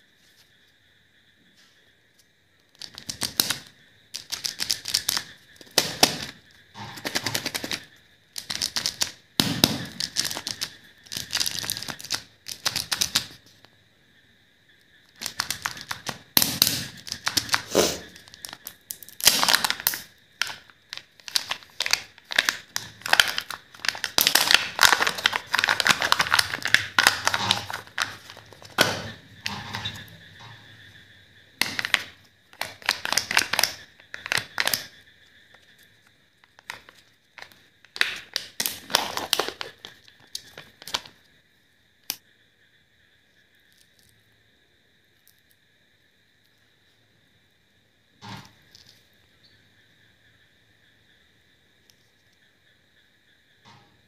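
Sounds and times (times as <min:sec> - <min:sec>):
foil wrapper crinkling: 0:09.9 - 0:13.4, 0:15.2 - 0:28.9, 0:31.6 - 0:34.9, 0:36.5 - 0:41.1.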